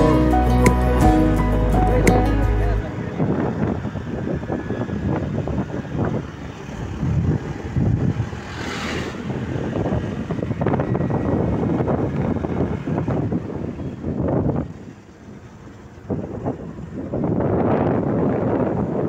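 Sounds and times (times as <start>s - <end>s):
moving road vehicle running noise: 0.0s - 19.0s
wind buffeting microphone: 2.8s - 19.0s
vehicle passing with rushing hiss: 2.9s - 14.6s.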